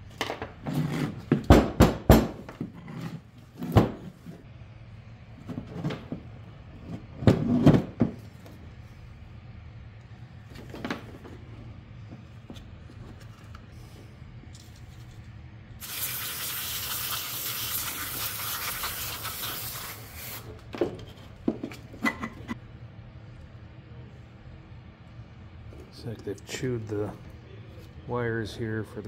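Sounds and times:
aerosol spray hissing: 15.8 - 20.5.

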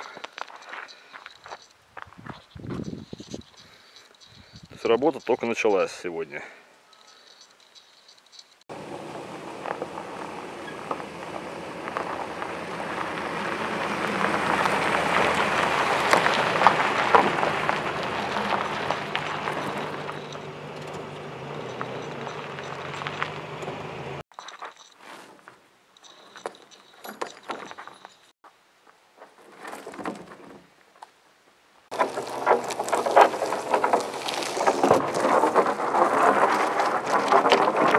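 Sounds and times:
footsteps on gravel: 0.0 - 5.4, 8.7 - 25.6, 31.9 - 37.9
steel cable clicks and scrapes: 0.0 - 5.5, 6.9 - 8.7, 9.6 - 28.3, 31.9 - 37.9
logs scraping over gravel: 0.0 - 28.3, 31.9 - 37.9
truck engine pulling under load: 8.7 - 24.3, 31.9 - 37.9.

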